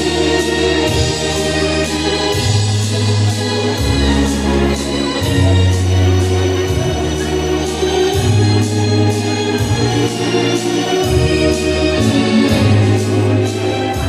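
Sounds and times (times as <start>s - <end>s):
organ playing dance music: 0.0s - 14.0s.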